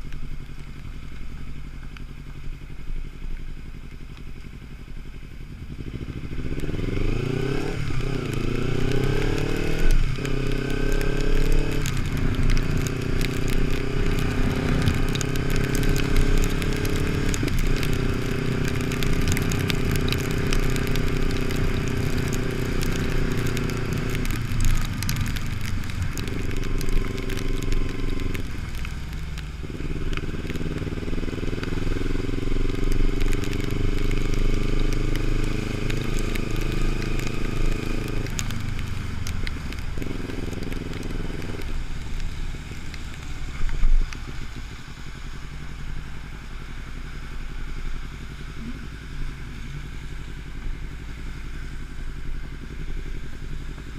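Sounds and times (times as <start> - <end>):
wind and wet road hiss: 0.0 - 53.9
motorcycle engine accelerating: 4.9 - 45.4.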